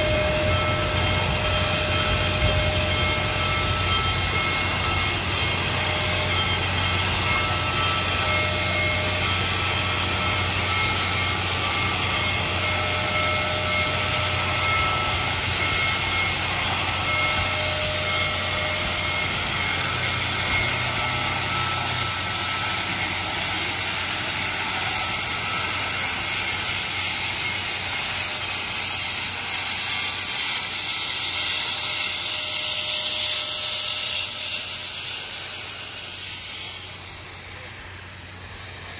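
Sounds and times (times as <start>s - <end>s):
low hum: 0.0s - 25.3s
steam locomotive hissing: 0.0s - 38.9s.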